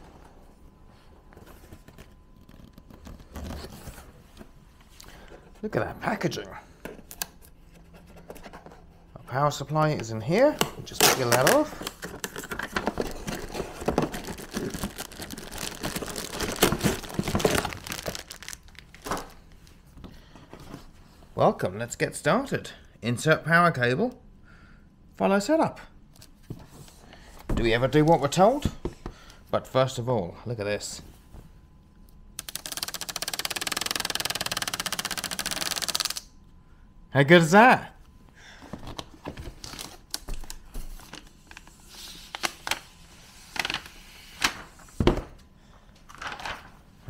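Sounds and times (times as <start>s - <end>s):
packaging sheet crinkling: 11.0s - 19.4s, 46.1s - 46.8s.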